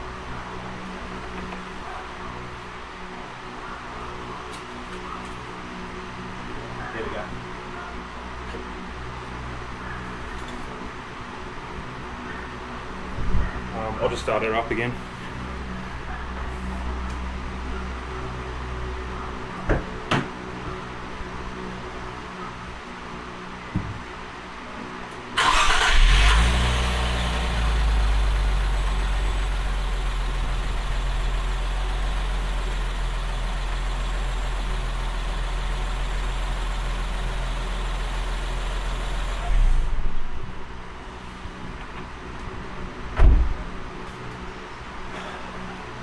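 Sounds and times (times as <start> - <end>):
thump: 19.7 - 20.3, 23.8 - 24.0, 43.2 - 43.6
car engine cranking and idling: 25.4 - 40.0.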